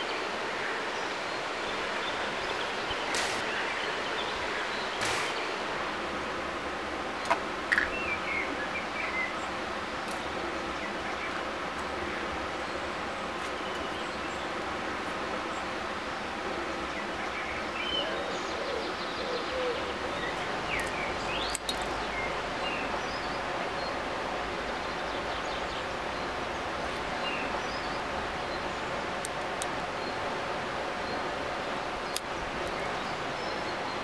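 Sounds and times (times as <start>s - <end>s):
birds chirping: 0.0s - 34.0s
river flowing: 0.0s - 34.0s
small sharp clicks: 3.1s - 3.5s, 5.0s - 5.4s.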